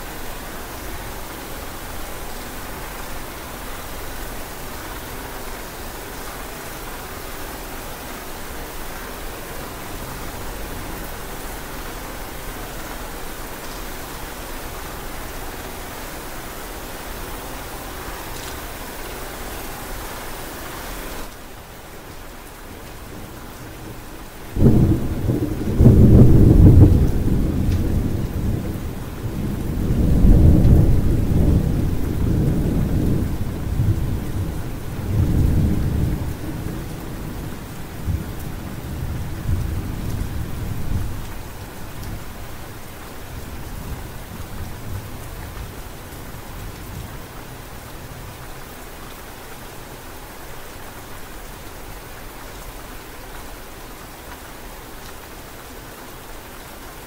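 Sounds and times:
rain hiss: 0:00.0 - 0:57.0
thunder rumbling: 0:23.1 - 0:41.4.

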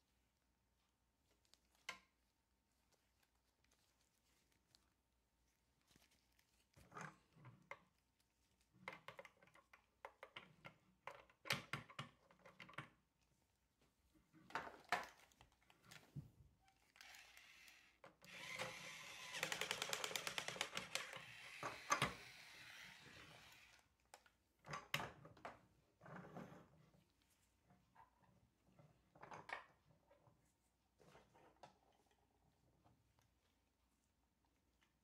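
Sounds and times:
plastic toy parts clicking: 0:16.9 - 0:22.2.

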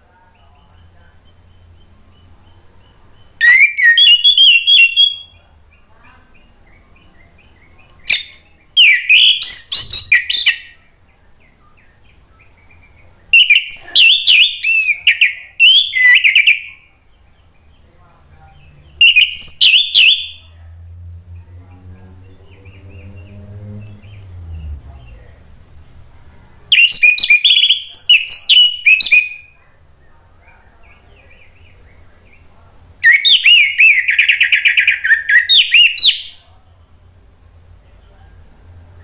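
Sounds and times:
thrush singing whistled phrases: 0:03.4 - 0:05.4, 0:07.4 - 0:10.7, 0:13.3 - 0:16.8, 0:19.0 - 0:20.5, 0:26.7 - 0:29.6, 0:33.0 - 0:36.5.

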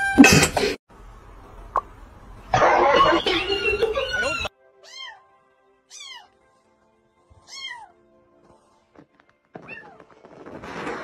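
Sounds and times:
soft background music: 0:03.7 - 0:10.2
cat meowing: 0:04.8 - 0:05.3, 0:05.9 - 0:06.4, 0:07.4 - 0:08.0, 0:09.6 - 0:10.0.

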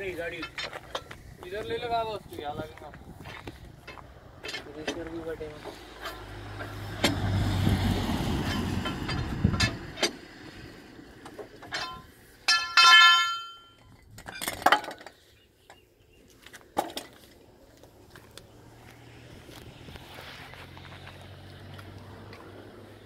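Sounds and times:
vehicle low rumble: 0:00.0 - 0:23.0
hydraulic jack clicks and clanks: 0:08.4 - 0:10.2, 0:11.2 - 0:15.2
loud metallic clang: 0:11.7 - 0:13.7.

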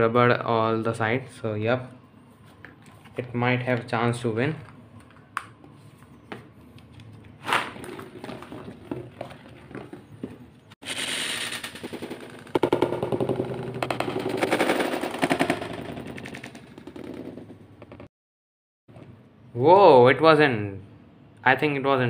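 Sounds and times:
spinning tops clashing: 0:10.8 - 0:16.6.

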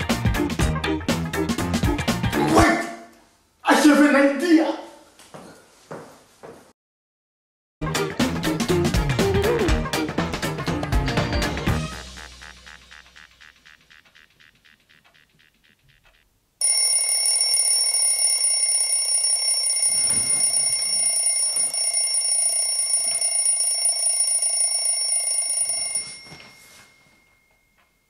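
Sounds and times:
alarm clock ringing: 0:16.6 - 0:28.0.

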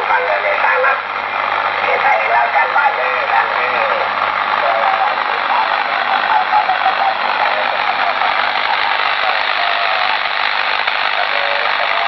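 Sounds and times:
garbled radio voice: 0:00.0 - 0:12.0
radio static hiss: 0:00.0 - 0:12.0.

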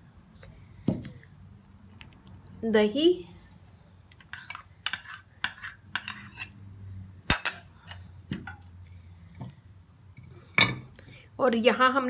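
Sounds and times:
metal spoon scraping bowl: 0:04.2 - 0:06.6, 0:07.3 - 0:08.0.

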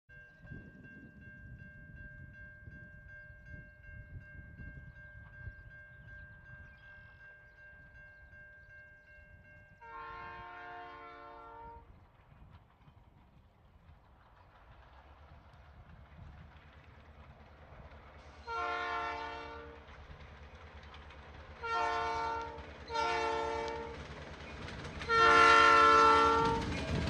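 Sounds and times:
train horn blast: 0:09.8 - 0:11.9, 0:18.4 - 0:19.8, 0:21.6 - 0:24.0, 0:25.0 - 0:27.0
diesel locomotive rumble: 0:10.0 - 0:27.0.

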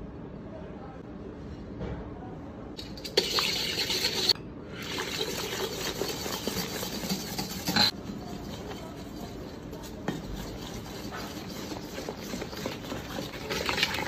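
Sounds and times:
fizzy liquid pouring into bowl: 0:02.8 - 0:07.8.

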